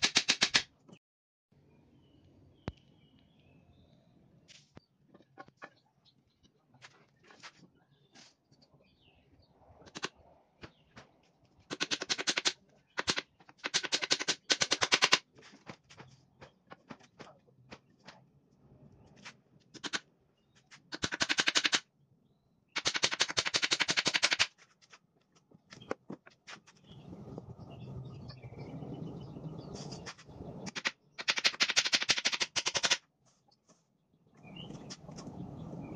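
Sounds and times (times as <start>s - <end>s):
hammer driving nails into wood: 0.0s - 0.6s, 11.7s - 15.2s, 20.9s - 21.8s, 22.8s - 24.5s, 30.7s - 33.0s.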